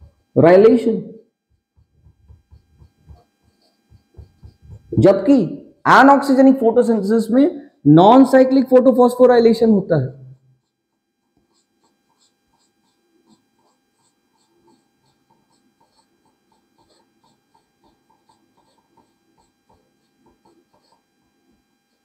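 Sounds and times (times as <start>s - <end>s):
electrical hum: 0.0s - 22.0s
marker squeaking on whiteboard: 1.5s - 5.3s, 10.4s - 22.0s.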